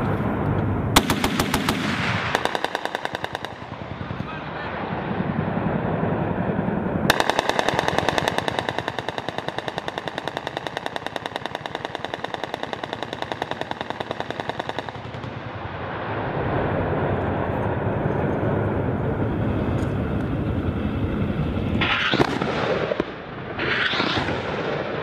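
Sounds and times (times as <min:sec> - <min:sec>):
rotary cannon firing burst: 0:01.0 - 0:05.3, 0:07.1 - 0:15.9, 0:21.8 - 0:25.0
low rumble: 0:14.9 - 0:25.0.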